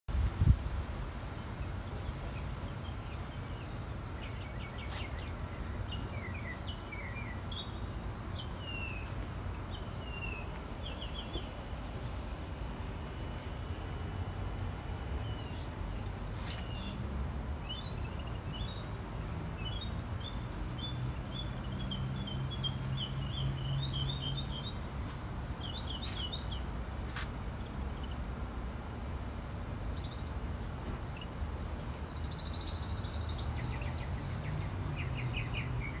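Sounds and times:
songbirds chirping: 0:01.3 - 0:36.0.

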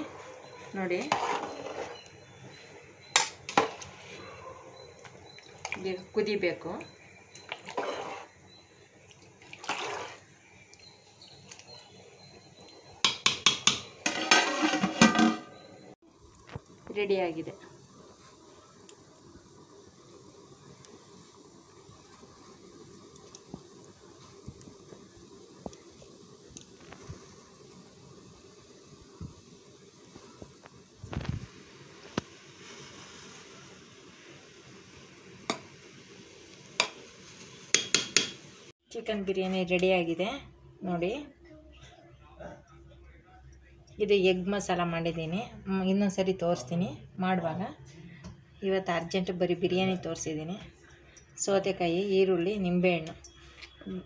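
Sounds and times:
ladle scraping pot: 0:00.0 - 0:02.1, 0:07.4 - 0:08.4, 0:09.4 - 0:10.3, 0:13.0 - 0:15.8
ladle stirring rice in pot: 0:00.0 - 0:11.8, 0:12.7 - 0:15.7
ladle knocking against metal pot: 0:13.0 - 0:15.6, 0:37.8 - 0:38.4
faint steady hiss: 0:16.0 - 0:41.8.

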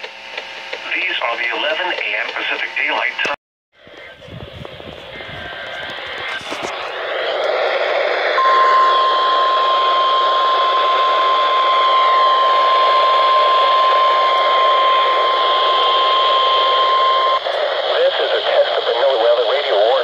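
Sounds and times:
radio static hiss: 0:00.4 - 0:08.5, 0:09.3 - 0:20.0
steady alert tone: 0:08.4 - 0:17.4.

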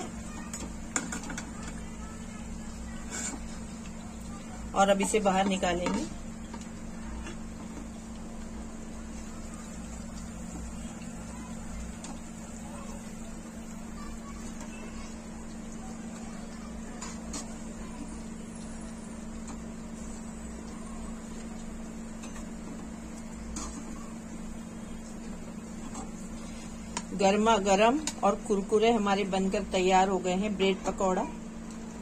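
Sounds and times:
low mechanical hum: 0:00.0 - 0:32.0.

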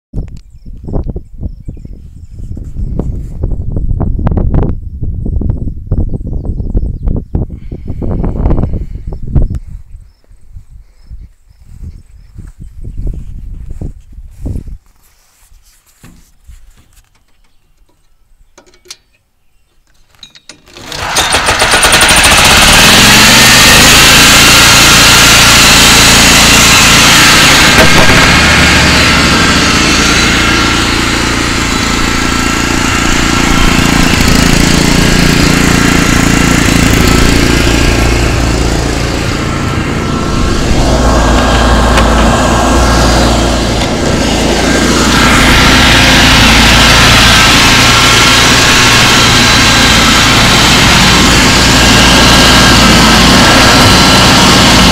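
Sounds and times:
lawn tractor engine running: 0:20.0 - 0:54.9.

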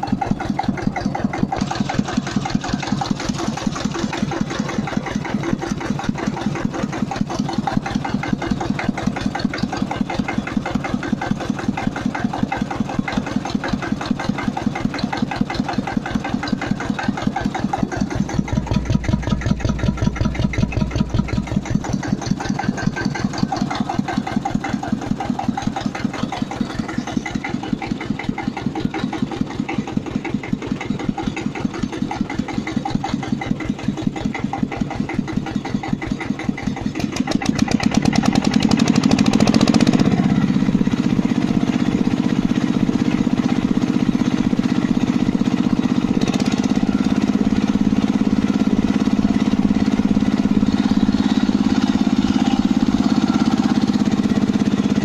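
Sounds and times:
tractor engine idling: 0:00.0 - 0:55.0.

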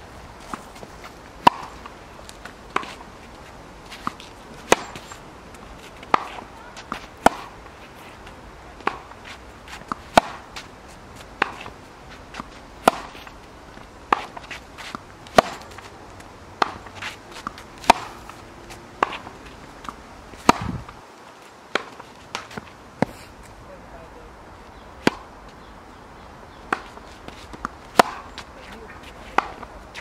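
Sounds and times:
tennis ball struck by racquets: 0:01.4 - 0:03.0, 0:03.9 - 0:05.2, 0:06.0 - 0:07.6, 0:08.8 - 0:10.5, 0:11.3 - 0:13.3, 0:14.1 - 0:15.9, 0:16.6 - 0:21.0, 0:25.0 - 0:25.3, 0:26.7 - 0:28.5, 0:29.2 - 0:30.0.

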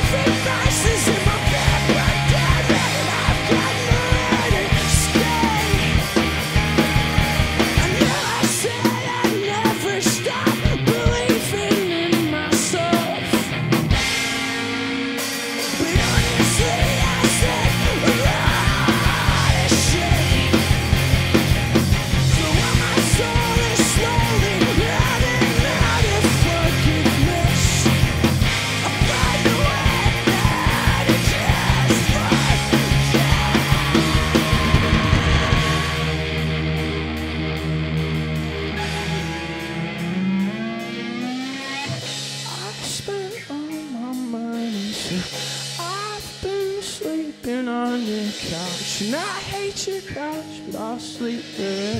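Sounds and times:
shouted vocals: 0:00.0 - 0:06.1, 0:07.0 - 0:13.3, 0:15.7 - 0:20.8, 0:22.2 - 0:28.1, 0:28.8 - 0:36.4
bass: 0:00.0 - 0:51.9
drums: 0:00.0 - 0:51.9
electric guitars: 0:00.0 - 0:51.9.

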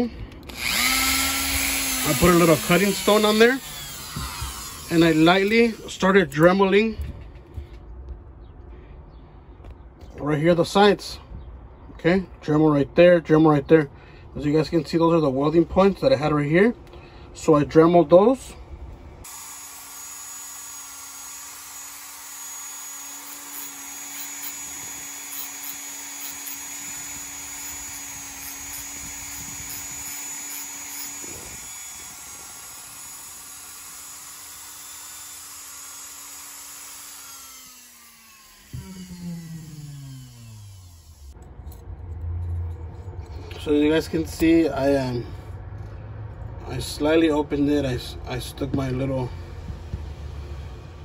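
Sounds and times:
rotary tool running and winding down: 0:00.5 - 0:06.0, 0:19.2 - 0:41.4.

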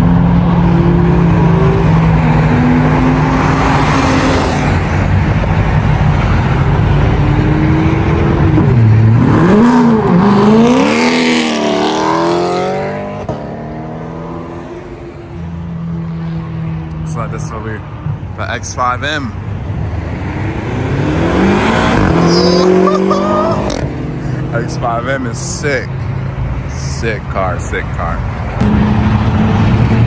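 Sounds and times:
car revving and accelerating: 0:00.0 - 0:17.6, 0:19.6 - 0:26.9, 0:27.9 - 0:30.0
car engines rumbling: 0:00.0 - 0:30.0.

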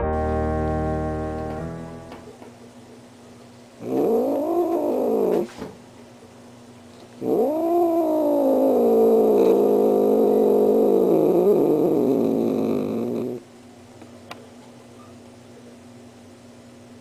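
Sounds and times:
cat growling yowls: 0:03.8 - 0:05.6, 0:07.2 - 0:13.4.

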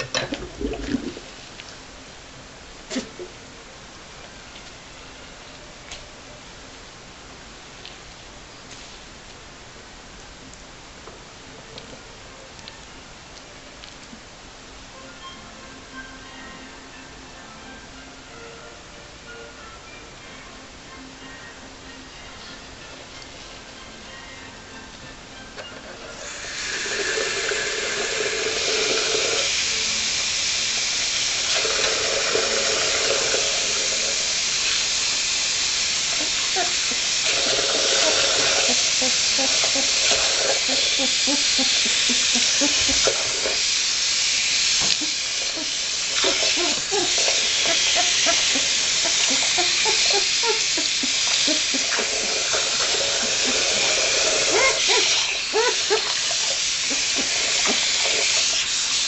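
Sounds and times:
water running into a bathtub: 0:00.0 - 0:01.8, 0:26.2 - 0:59.0
water splashing and gurgling: 0:00.2 - 0:01.5.

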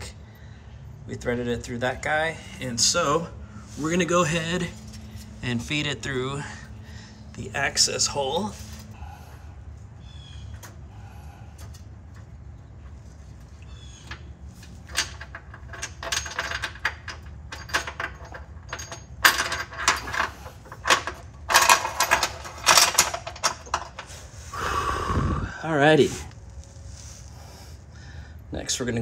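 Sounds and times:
low hum: 0:00.0 - 0:28.5
bolt rattling against metal: 0:14.0 - 0:24.1.

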